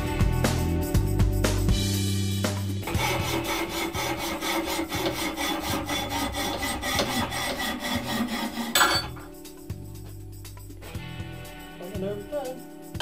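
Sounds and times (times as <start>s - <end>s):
hand file filing metal: 2.8s - 9.3s.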